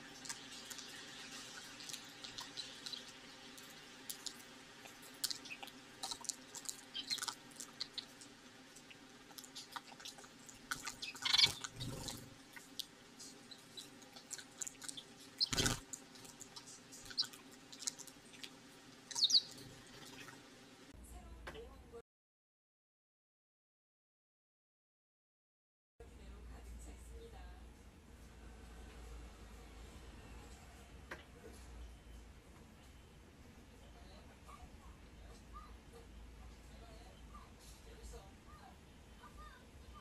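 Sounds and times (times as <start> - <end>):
birds pecking plastic cups: 0.0 - 20.4
rain dripping: 0.0 - 20.6
sparrow chirps: 6.8 - 8.1, 10.8 - 12.1, 14.7 - 15.8, 17.0 - 17.4, 19.1 - 19.6.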